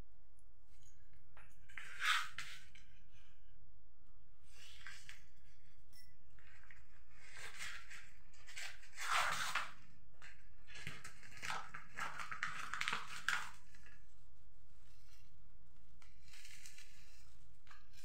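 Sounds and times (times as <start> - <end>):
paper pouch tearing: 8.5 - 9.8
bubble wrap crinkling: 10.6 - 14.0.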